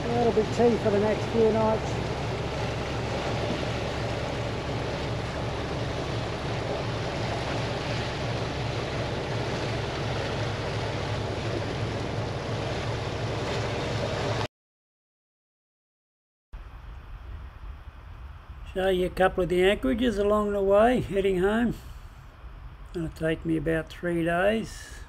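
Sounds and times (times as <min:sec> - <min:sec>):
boat motor running: 0:00.0 - 0:14.5
wake water rushing: 0:00.0 - 0:14.5
wind: 0:00.0 - 0:14.5, 0:16.6 - 0:25.0.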